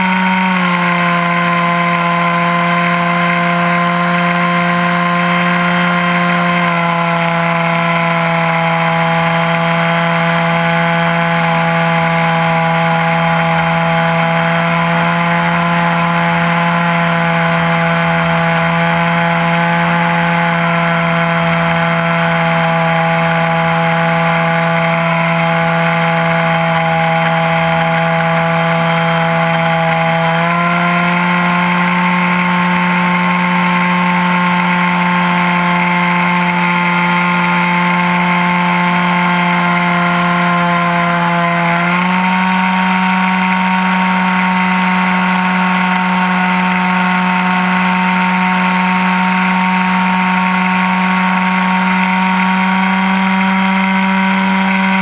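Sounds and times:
model aircraft engine running: 0.0 - 55.0.

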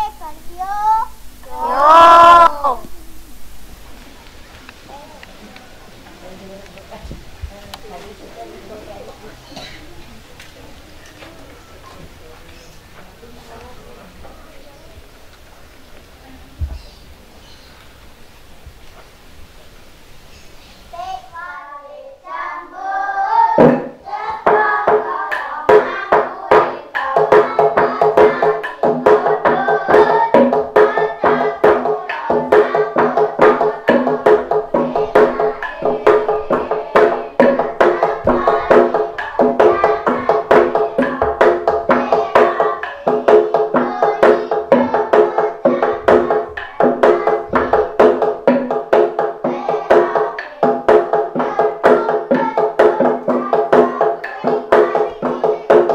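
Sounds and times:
person singing: 1.4 - 3.0, 21.4 - 47.8.

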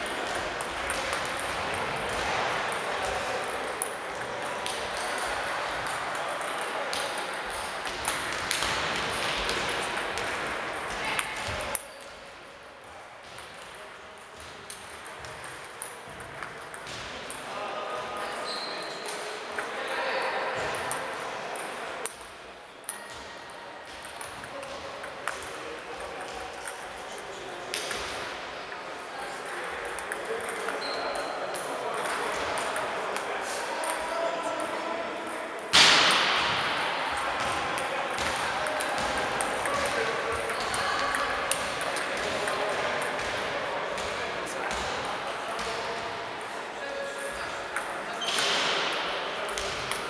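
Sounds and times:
table tennis balls clicking: 0.0 - 12.1, 13.2 - 17.5, 20.8 - 28.2, 29.4 - 34.0, 37.4 - 44.2, 49.5 - 50.0
echoing hubbub: 0.0 - 50.0
sports hall background noise: 0.0 - 50.0
table tennis ball clicking: 38.7 - 43.3.

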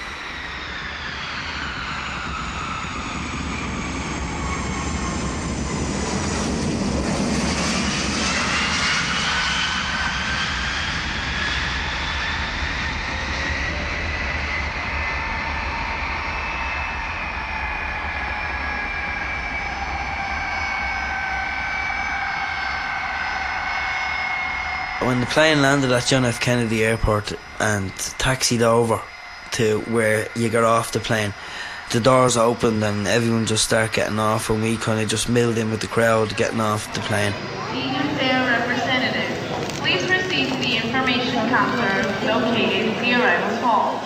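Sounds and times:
jet engines whining: 0.0 - 44.0
low rumble: 11.9 - 43.8.

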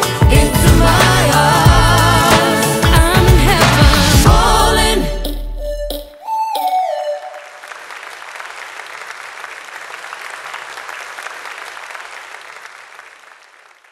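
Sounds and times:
audience applauding: 7.4 - 13.9.

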